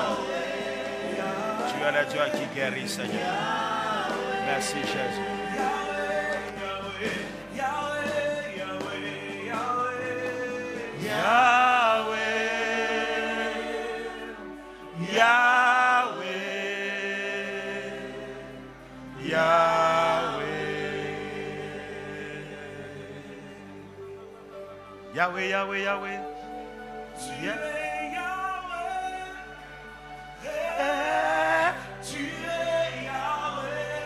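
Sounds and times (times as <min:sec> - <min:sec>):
gospel worship singing: 0:00.0 - 0:34.0.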